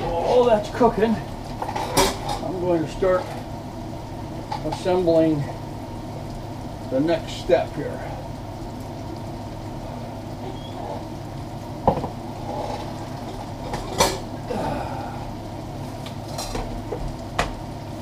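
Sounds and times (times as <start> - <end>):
beef cooking in stockpot: 0.0 - 18.0
kitchenware clinking: 1.6 - 2.5, 13.6 - 14.3.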